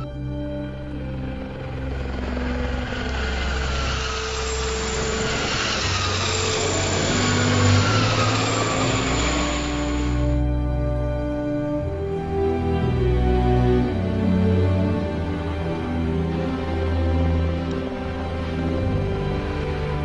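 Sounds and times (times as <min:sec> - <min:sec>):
helicopter flying overhead: 0:00.0 - 0:12.4.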